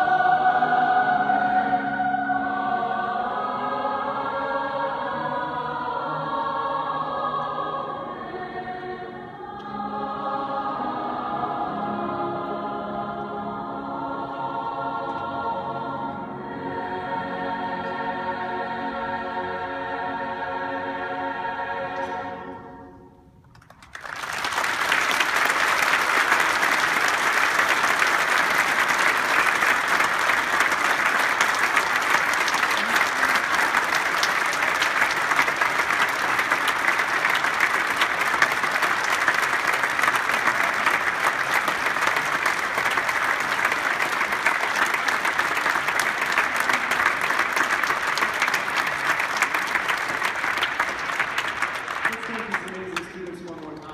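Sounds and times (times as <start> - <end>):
choir final chord: 0.0 - 23.2, 24.7 - 51.8
audience applauding: 23.5 - 53.9.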